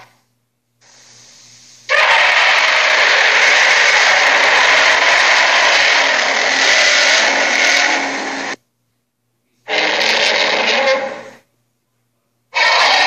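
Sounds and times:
cartoon dinosaur roar through speaker: 0:01.9 - 0:08.6, 0:09.7 - 0:11.4, 0:12.6 - 0:13.0.

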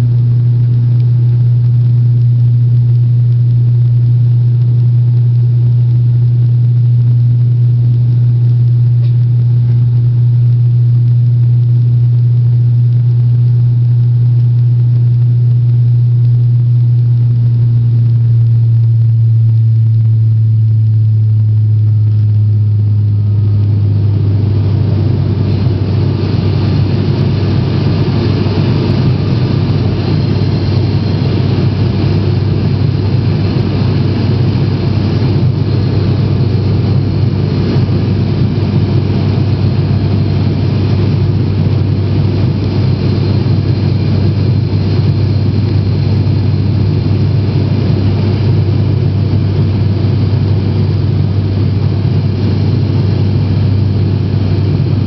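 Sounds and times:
propeller engine drone in cabin: 0:00.0 - 0:55.0
broad rushing noise: 0:22.1 - 0:55.0.

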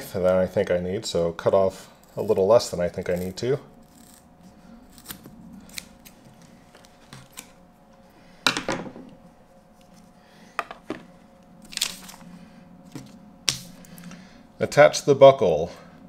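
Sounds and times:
knocks and clatter on table: 0:08.5 - 0:09.1.

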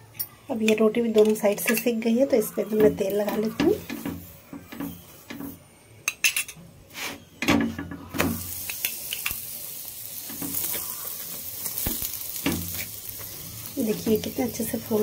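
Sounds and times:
oil sizzling on a hot griddle: 0:08.1 - 0:15.0.

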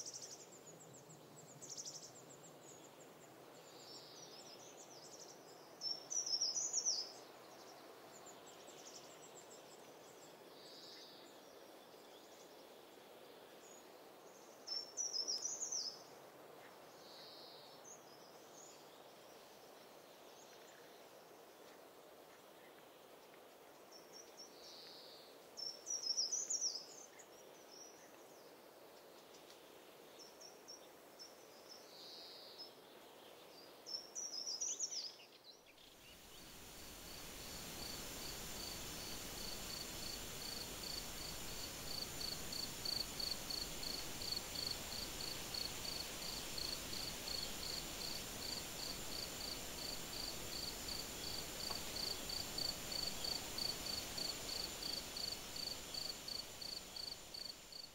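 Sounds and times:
soft hiss: 0:00.0 - 0:57.9
cricket chirping: 0:36.2 - 0:57.9.

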